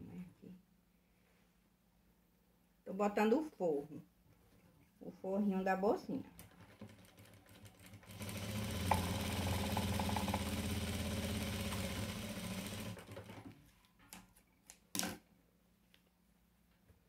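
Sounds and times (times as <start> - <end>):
sewing machine running: 6.7 - 13.5.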